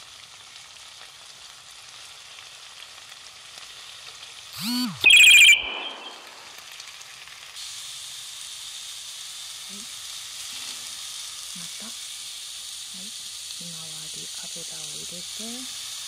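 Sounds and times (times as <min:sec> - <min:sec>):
food sizzling in frying pan: 0:00.0 - 0:04.6, 0:06.3 - 0:16.0
harsh electronic screech: 0:04.6 - 0:06.4.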